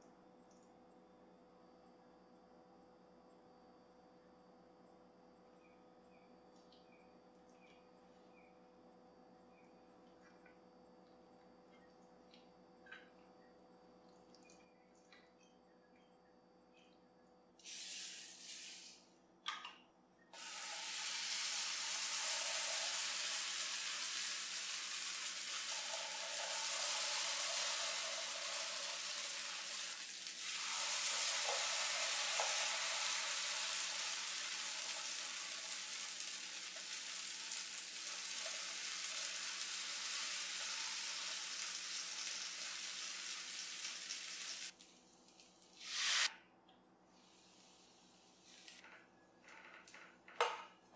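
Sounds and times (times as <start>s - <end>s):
batter sizzling in waffle iron: 20.4s - 46.3s.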